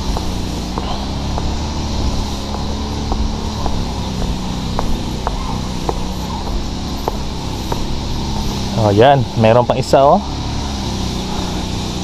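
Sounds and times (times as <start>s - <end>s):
footsteps on concrete steps: 0.0s - 8.7s.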